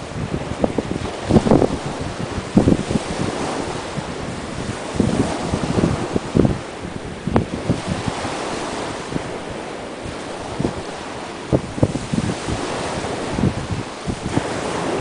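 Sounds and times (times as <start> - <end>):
small waves breaking on shore: 0.0 - 15.0
wind buffeting microphone: 0.0 - 15.0.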